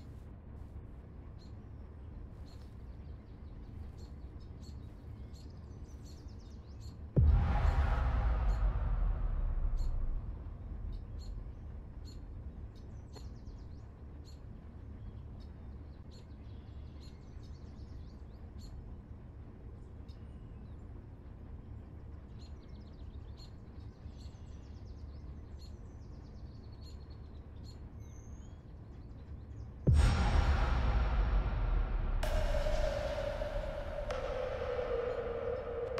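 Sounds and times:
low outdoor rumble: 0.0s - 35.9s
deep boom: 7.2s - 13.4s, 29.9s - 35.9s.

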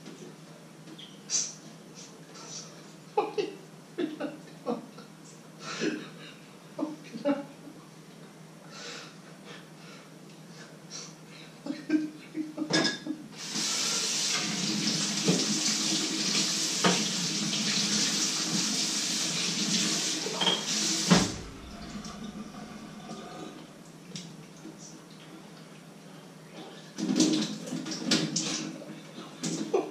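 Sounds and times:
dishes clinking: 12.7s - 13.1s
tap water running into sink: 13.4s - 23.5s
knock against sink: 21.1s - 22.3s.

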